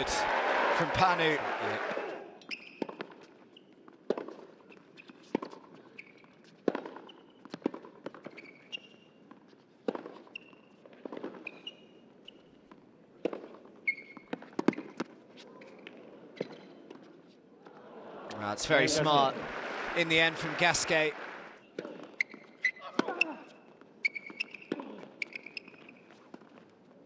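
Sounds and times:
sneaker squeaks on court: 2.4s - 3.7s, 4.7s - 9.2s, 10.0s - 12.5s, 13.8s - 15.0s, 15.6s - 16.8s, 21.6s - 26.3s.

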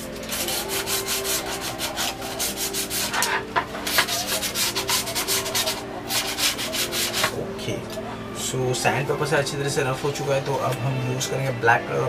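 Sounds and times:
sandpaper rubbing: 0.0s - 7.4s.

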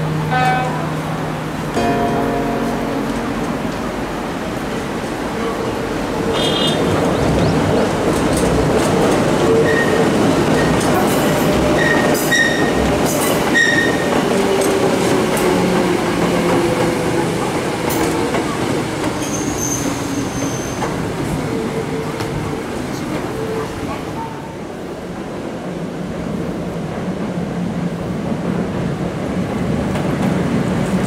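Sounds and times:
electric train running past: 0.0s - 31.0s.

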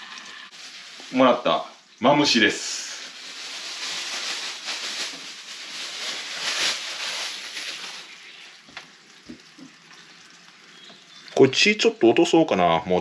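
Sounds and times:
plastic bag crinkling: 0.2s - 9.1s.

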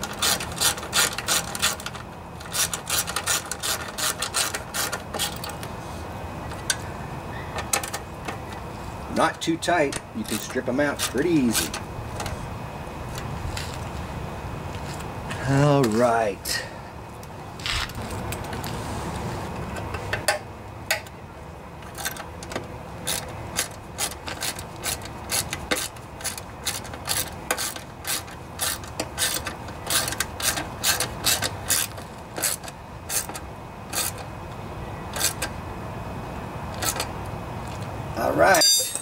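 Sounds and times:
ratchet wrench clicking: 21.9s - 34.3s.

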